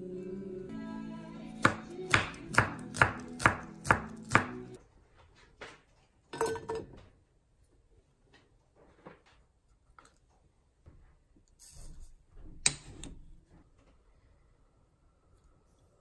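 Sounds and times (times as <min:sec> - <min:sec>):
background music: 0:00.0 - 0:04.8.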